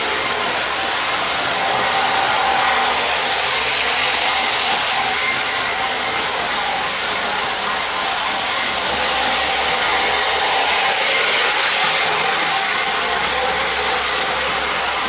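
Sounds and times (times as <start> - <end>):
model locomotive whirring: 0.0 - 15.0.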